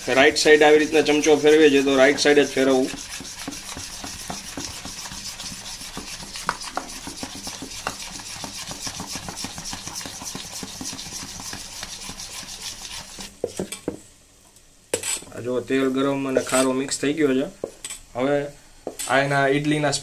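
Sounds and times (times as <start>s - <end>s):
metal spoon stirring batter in bowl: 0.0s - 13.8s.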